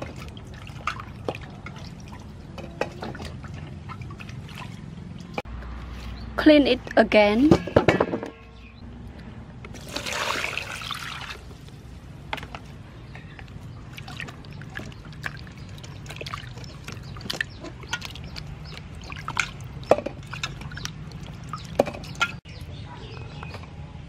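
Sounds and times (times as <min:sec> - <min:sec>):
small splashes and knocks: 0:00.0 - 0:05.4, 0:09.7 - 0:22.4
water pouring into steel bowl: 0:09.8 - 0:11.5.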